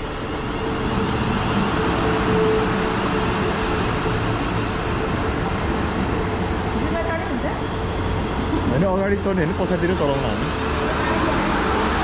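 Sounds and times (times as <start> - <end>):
train wheels and air rushing: 0.0 - 12.0.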